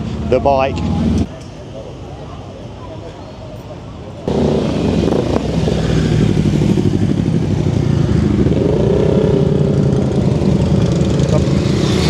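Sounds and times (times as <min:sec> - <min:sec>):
motorcycle engine running: 0:04.3 - 0:12.0.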